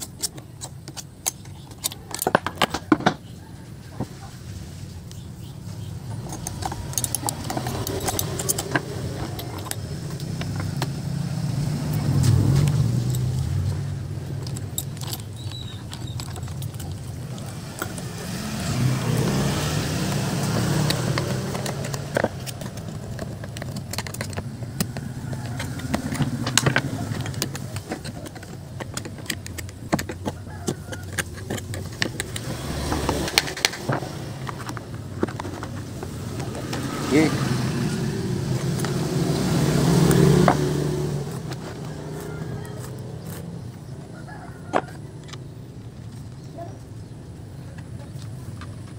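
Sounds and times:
metal clinking and rattling: 0:00.0 - 0:03.3, 0:06.0 - 0:37.5
motorbikes passing by: 0:05.4 - 0:48.9.

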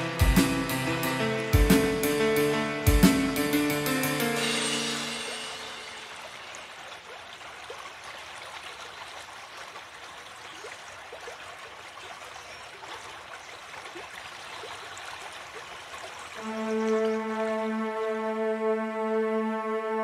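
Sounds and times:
stream water gurgling: 0:04.8 - 0:18.7.

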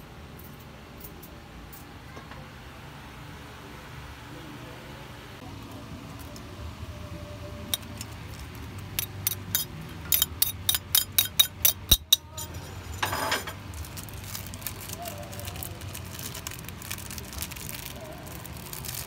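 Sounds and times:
metal spoon clinking on plate: 0:09.0 - 0:13.6.

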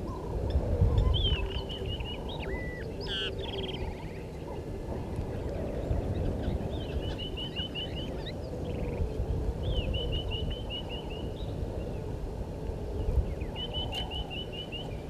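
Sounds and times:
bird chirping: 0:01.0 - 0:04.6.

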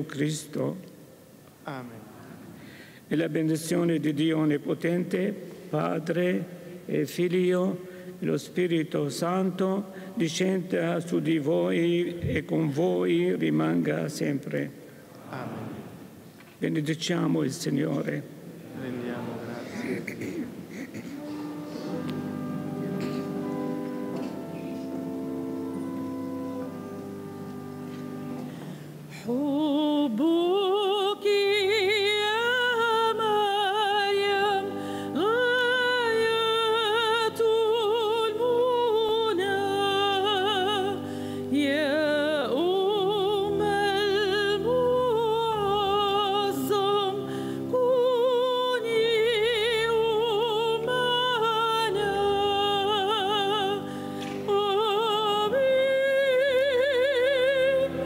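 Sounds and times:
held instrumental chords: 0:21.1 - 0:29.2
person singing with vibrato: 0:28.0 - 0:58.0.

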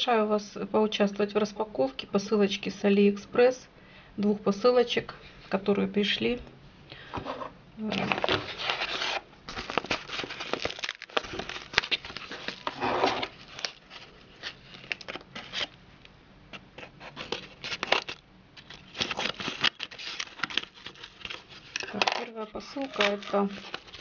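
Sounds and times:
paper envelope rustling and crinkling: 0:07.9 - 0:15.8, 0:16.6 - 0:24.0.

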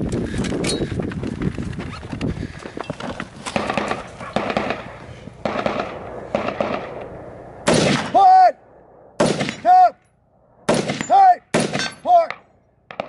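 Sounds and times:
footsteps running on dry dirt: 0:00.0 - 0:05.4.

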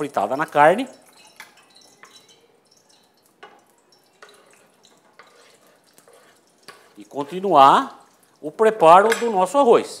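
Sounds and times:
fork scraping wooden cutting board: 0:05.2 - 0:07.0.

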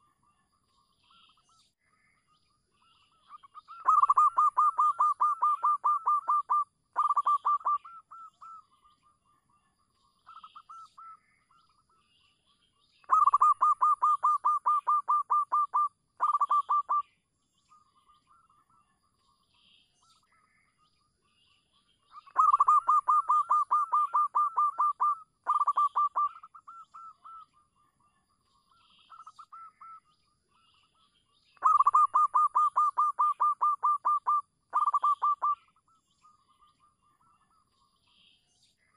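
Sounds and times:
dove cooing: 0:03.8 - 0:08.3, 0:13.1 - 0:17.0, 0:22.4 - 0:26.8, 0:31.6 - 0:35.6.

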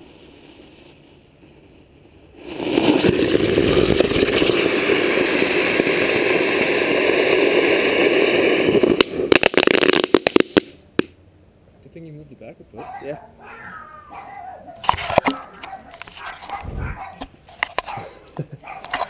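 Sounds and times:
firework rushing hiss: 0:00.0 - 0:11.2
firework sputtering: 0:00.0 - 0:11.2, 0:14.8 - 0:19.0.

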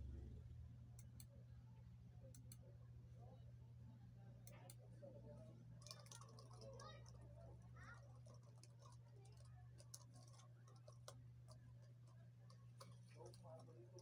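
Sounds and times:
low steady hum: 0:00.0 - 0:14.0
laptop keyboard typing clicks: 0:05.8 - 0:07.2, 0:08.1 - 0:14.0.

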